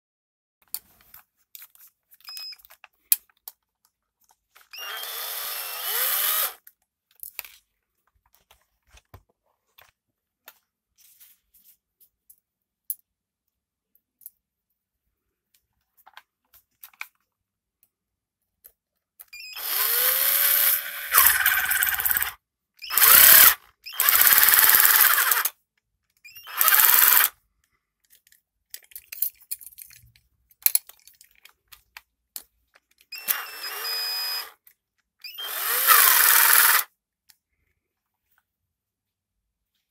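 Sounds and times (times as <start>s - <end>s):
electric screwdriver running: 4.8s - 6.6s, 19.6s - 25.5s, 26.4s - 27.3s, 33.2s - 34.6s, 35.3s - 36.9s
handling clicks of plate and screws: 28.0s - 33.1s.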